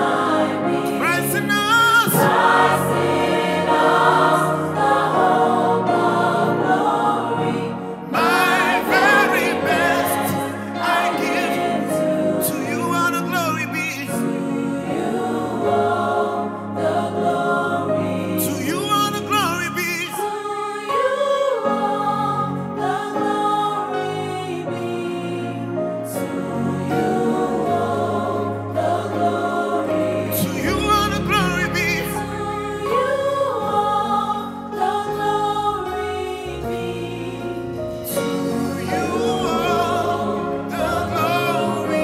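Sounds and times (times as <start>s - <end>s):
backing singers in harmony: 0.0s - 42.0s
man singing gospel lead: 0.8s - 2.9s, 8.1s - 14.4s, 18.4s - 20.4s, 30.2s - 32.5s, 36.5s - 42.0s
sustained chords: 26.3s - 42.0s.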